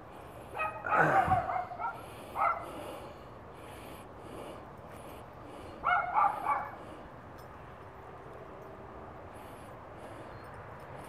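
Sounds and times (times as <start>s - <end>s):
dog barking: 0.6s - 2.7s, 5.8s - 6.8s.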